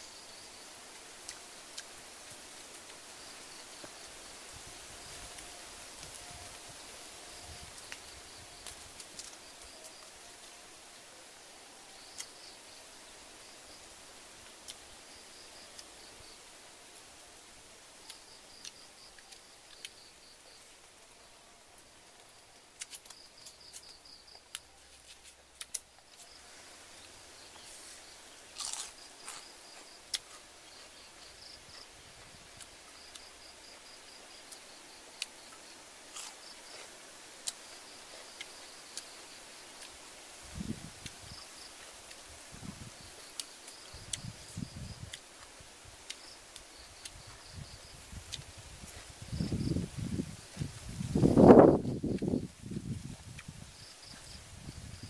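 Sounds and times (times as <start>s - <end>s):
insect chirping in pulses: 25.7s - 45.2s, 46.0s - 55.0s.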